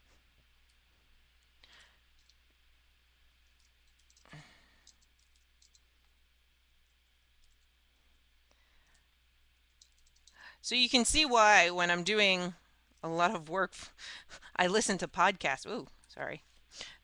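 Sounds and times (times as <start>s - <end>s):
faint low hum: 0.0s - 17.0s
computer mouse clicks: 1.7s - 2.4s, 3.5s - 5.9s, 7.4s - 7.7s, 8.9s - 10.4s.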